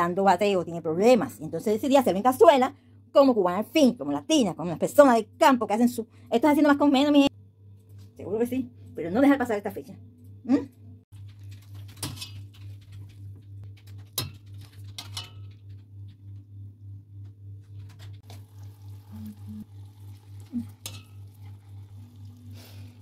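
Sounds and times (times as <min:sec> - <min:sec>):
metal tongs clinking on pot: 0:20.7 - 0:21.6.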